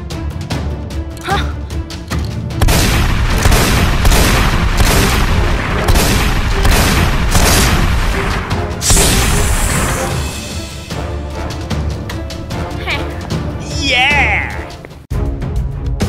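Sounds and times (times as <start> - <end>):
dramatic action music: 0.0 - 16.0
loud booms and gunshot effects: 2.6 - 10.4.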